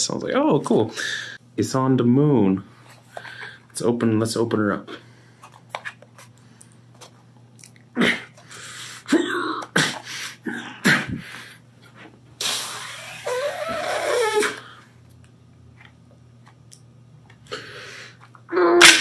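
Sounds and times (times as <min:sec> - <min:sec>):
person grunting: 0:09.1 - 0:11.2.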